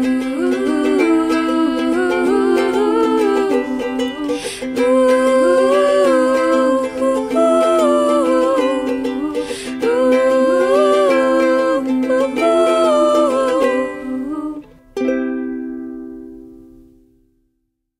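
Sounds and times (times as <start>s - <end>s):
woman singing wordlessly: 0.0s - 14.8s
ukulele playing: 0.0s - 17.3s.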